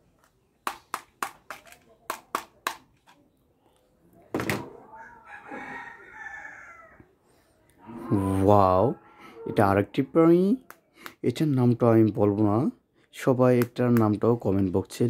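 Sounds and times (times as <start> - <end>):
rooster crowing: 4.7 - 7.0, 7.8 - 10.1.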